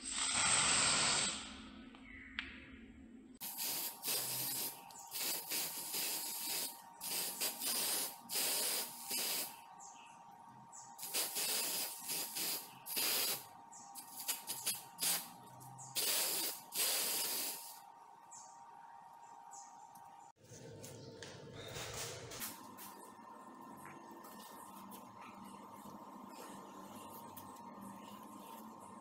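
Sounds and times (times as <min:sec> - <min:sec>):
spray paint can hissing: 0:00.0 - 0:01.5, 0:03.4 - 0:09.6, 0:11.0 - 0:15.3, 0:16.0 - 0:17.8.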